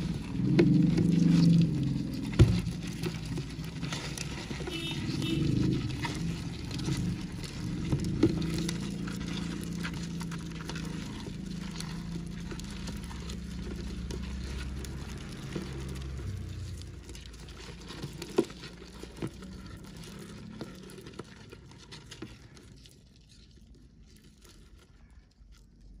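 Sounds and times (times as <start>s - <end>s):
low hum: 0.0s - 21.8s
beetles scratching on plastic: 0.0s - 25.2s.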